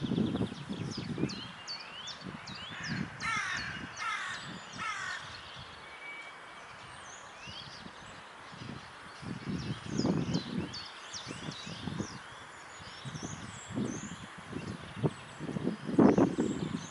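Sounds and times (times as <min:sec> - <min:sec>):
songbirds chirping: 0:00.0 - 0:16.9
crow cawing: 0:02.7 - 0:05.3.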